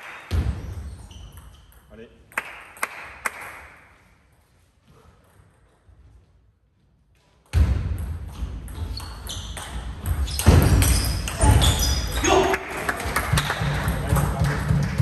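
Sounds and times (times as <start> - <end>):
short high squeaks: 10.2 - 12.4.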